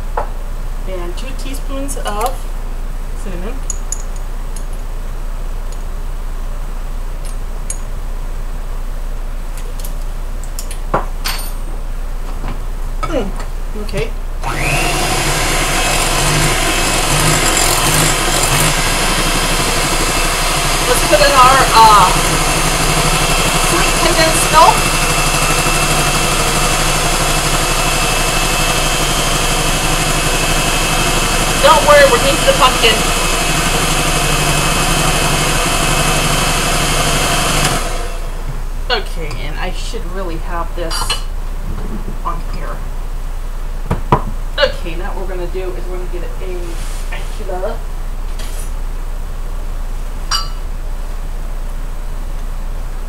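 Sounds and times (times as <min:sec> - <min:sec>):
electric hand mixer whirring: 0:14.4 - 0:38.5
ringing clink: 0:50.3 - 0:50.6
spoons and jars clinking: 0:50.3 - 0:50.6.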